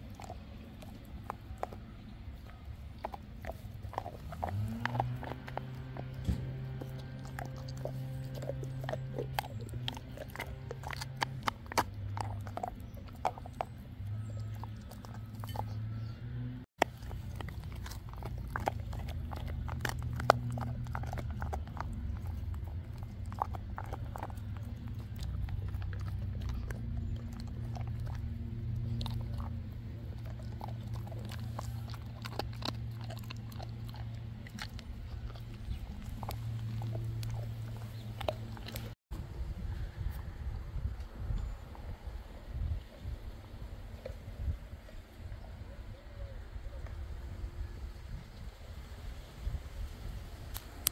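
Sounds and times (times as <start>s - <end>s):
dog chewing on a bone: 0.0s - 39.0s
low steady hum: 0.0s - 50.9s.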